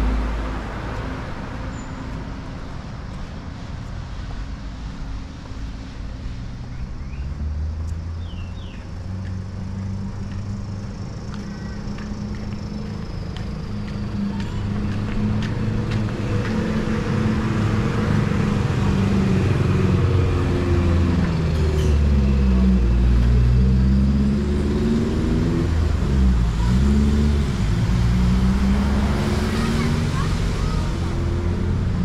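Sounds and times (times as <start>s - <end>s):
engine revving: 14.6s - 32.0s.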